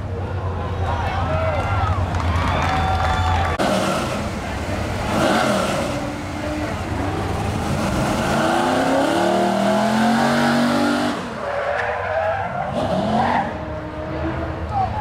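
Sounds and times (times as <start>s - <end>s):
tires squealing: 0.8s - 15.0s
pickup truck engine revving: 3.4s - 11.6s.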